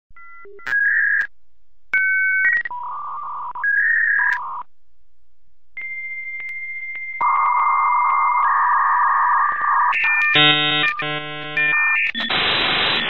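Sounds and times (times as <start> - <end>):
steady high tone with clicks: 2.0 - 4.7, 5.8 - 13.0
buzzy modem tones: 5.8 - 13.0
electronic dialing beeps: 5.8 - 13.0.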